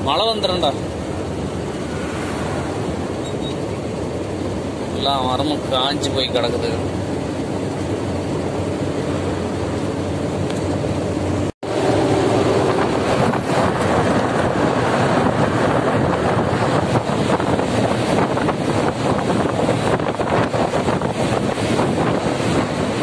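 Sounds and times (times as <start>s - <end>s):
diesel lorry engine hum: 0.0s - 23.0s
road noise: 0.0s - 23.0s
wind buffeting microphone: 11.4s - 23.0s.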